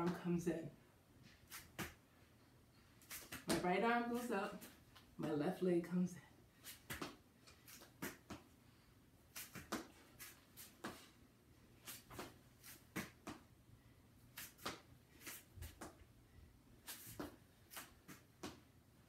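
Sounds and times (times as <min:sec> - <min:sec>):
scuffs on foam mats: 0:14.4 - 0:16.0.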